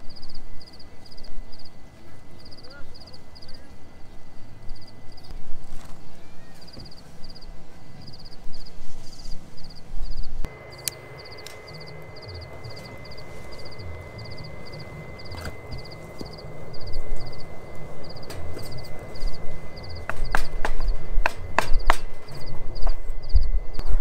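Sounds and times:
night insects chirping: 0.0s - 24.0s
low rumble: 9.6s - 24.0s
sharp clicks: 10.7s - 12.0s.

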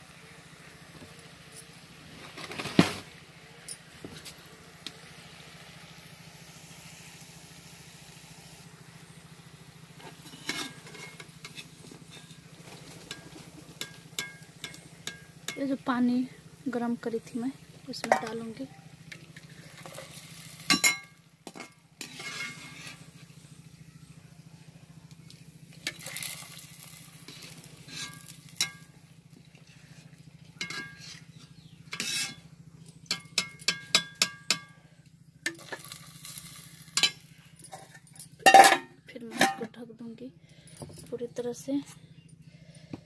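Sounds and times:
hot oil frying sizzle: 0.0s - 23.5s, 25.3s - 31.2s, 35.4s - 38.8s.

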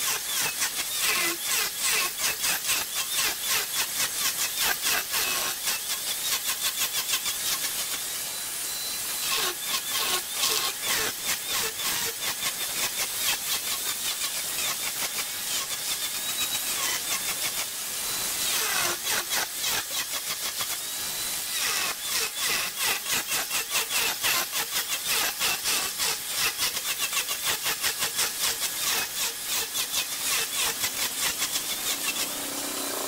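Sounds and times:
high squeal: 8.1s - 9.7s
lathe tool chattering on wood: 21.5s - 33.0s.

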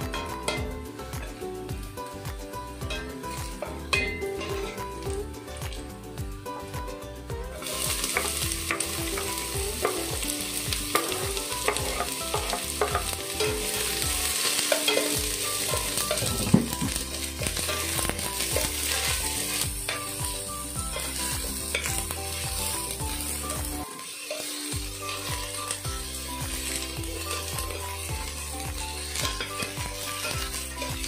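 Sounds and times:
onion sizzling in oil: 0.0s - 31.0s
sharp metal clank: 2.9s - 4.8s.

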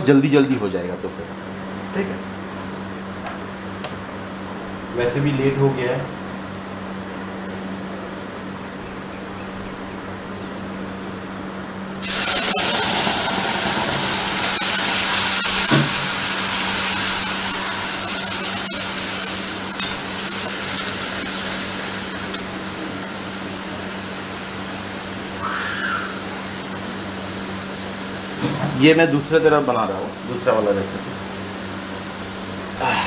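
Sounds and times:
hot oil sizzling: 7.4s - 9.1s, 12.0s - 29.4s
spatula stirring: 17.0s - 22.5s
utensils clinking on pan: 19.7s - 21.5s.

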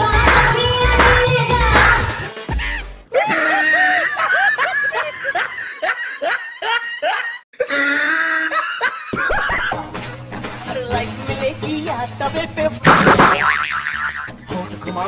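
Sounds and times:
person laughing: 2.5s - 9.8s.

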